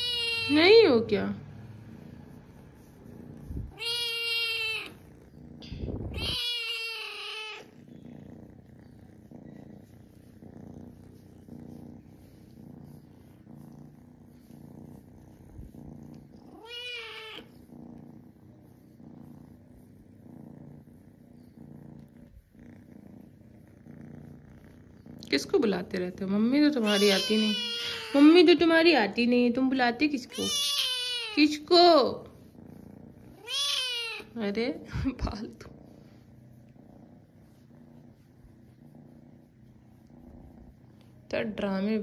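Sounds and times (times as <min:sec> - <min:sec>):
cat meowing: 0:00.0 - 0:00.7, 0:03.7 - 0:05.0, 0:05.6 - 0:07.7, 0:16.5 - 0:17.5, 0:26.8 - 0:28.4, 0:30.3 - 0:31.6, 0:33.4 - 0:34.4
cat purring: 0:00.0 - 0:42.0.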